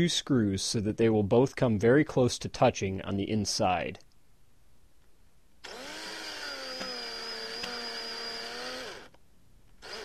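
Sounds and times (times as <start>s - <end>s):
power driver motor running: 5.6s - 9.1s, 9.8s - 10.0s.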